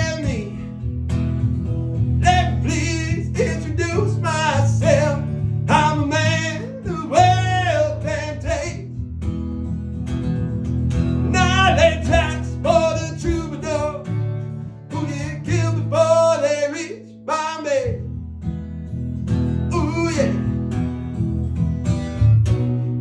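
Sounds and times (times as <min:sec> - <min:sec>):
acoustic guitar strummed chords: 0:00.0 - 0:23.0
person singing: 0:02.2 - 0:08.9, 0:11.2 - 0:14.1, 0:14.9 - 0:18.1, 0:19.7 - 0:20.5.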